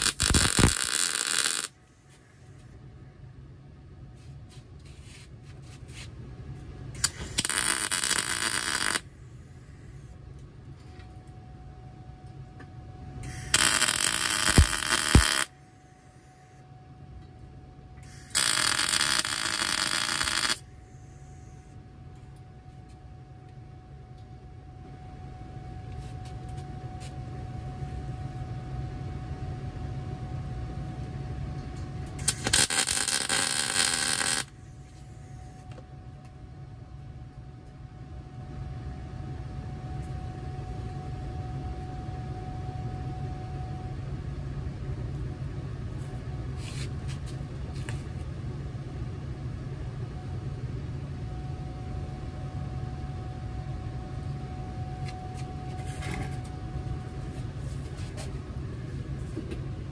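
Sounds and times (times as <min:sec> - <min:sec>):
welding arc crackle: 0:00.0 - 0:01.8, 0:07.0 - 0:09.1, 0:13.2 - 0:15.5, 0:18.0 - 0:20.6, 0:32.2 - 0:34.6
steady low hum: 0:00.0 - 0:59.9.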